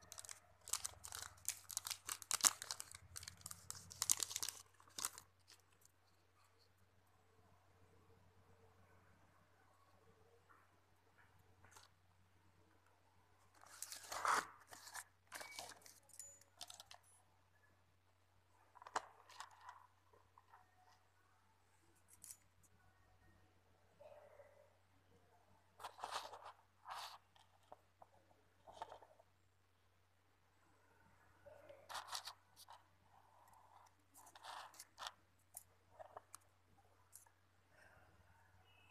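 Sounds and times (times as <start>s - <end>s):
plastic packaging crinkling: 0.0s - 5.9s, 13.5s - 17.0s.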